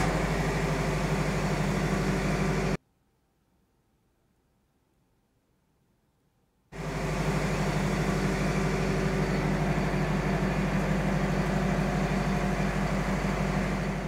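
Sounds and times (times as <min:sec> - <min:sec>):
diesel generator running: 0:00.0 - 0:02.8, 0:06.8 - 0:14.0.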